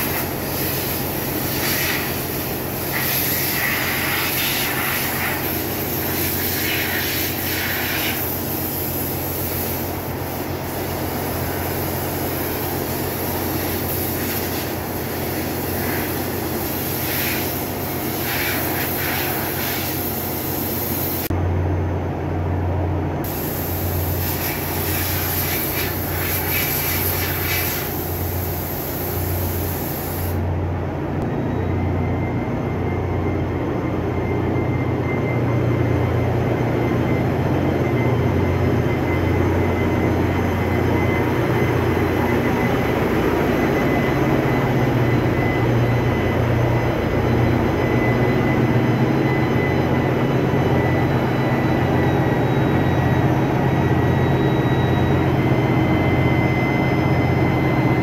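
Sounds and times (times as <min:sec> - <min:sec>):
engine-room machinery drone: 0:00.0 - 0:58.0
compressed-air blow gun hissing: 0:23.3 - 0:30.4.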